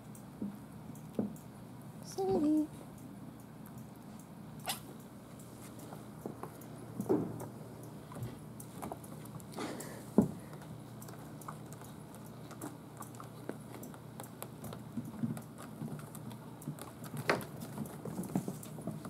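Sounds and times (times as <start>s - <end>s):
kittens' paws pattering on wood: 7.4s - 19.0s.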